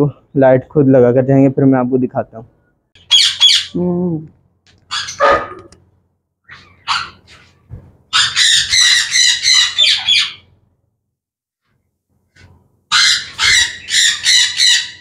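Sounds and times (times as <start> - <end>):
birds screeching: 3.0 - 3.8, 4.9 - 5.6, 6.5 - 7.2, 8.1 - 10.5, 12.9 - 15.0
lovebirds squawking: 3.0 - 3.8, 4.9 - 5.6, 8.1 - 10.5, 12.9 - 15.0.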